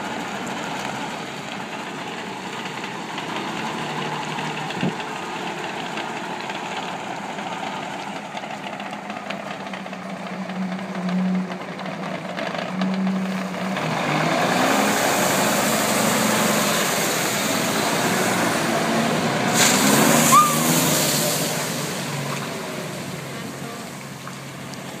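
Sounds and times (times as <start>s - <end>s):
truck engine running: 0.0s - 25.0s
water spraying onto gravel: 13.4s - 25.0s
short sharp hiss: 19.5s - 21.4s.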